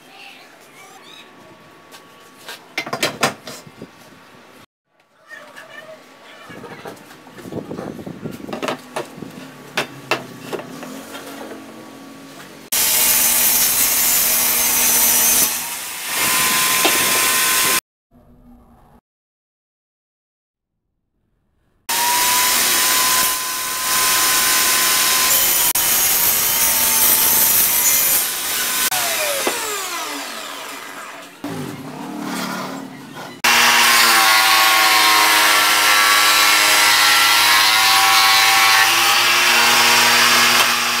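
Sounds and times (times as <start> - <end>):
table saw cutting wood: 9.8 - 17.8, 21.9 - 41.0
power tool whining: 21.9 - 31.5, 33.4 - 41.0.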